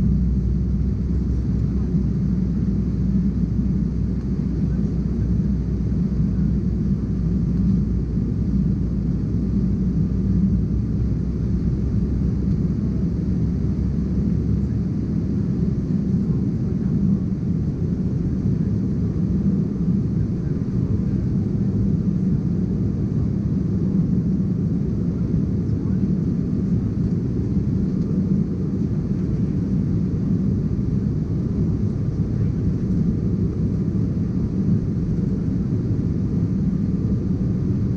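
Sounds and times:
jet engines droning: 0:00.0 - 0:37.9
rushing air in cabin: 0:20.2 - 0:37.9.

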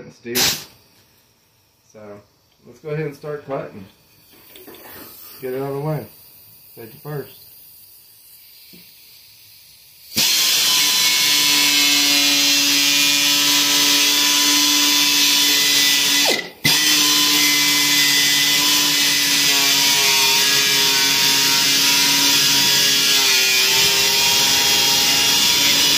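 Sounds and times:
cut-off tool whining: 0:10.1 - 0:25.9.

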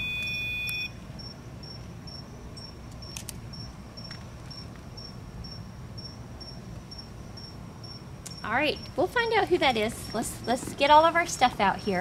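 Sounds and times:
low background hum: 0:00.0 - 0:12.0
cricket chirping: 0:01.2 - 0:08.9.

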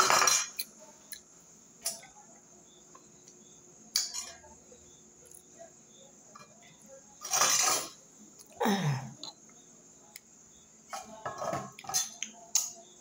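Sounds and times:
spoon and glass plate clinking: 0:00.0 - 0:00.7, 0:04.0 - 0:04.4, 0:07.2 - 0:08.0, 0:10.9 - 0:12.2.

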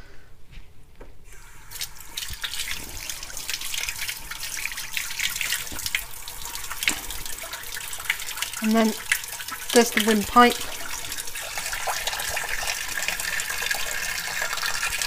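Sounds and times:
water splashing into sink: 0:01.4 - 0:15.0
kitchen tap turned on: 0:05.1 - 0:15.0.

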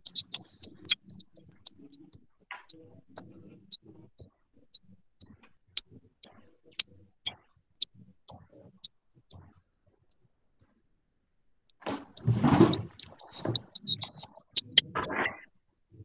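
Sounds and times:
clock ticking: 0:00.0 - 0:10.2, 0:11.7 - 0:15.0.

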